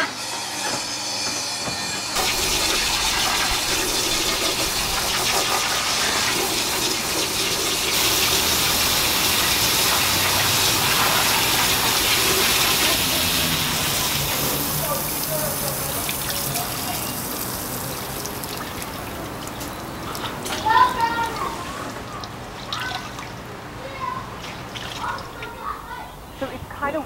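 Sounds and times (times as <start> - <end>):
steady rushing noise: 2.2 - 15.9.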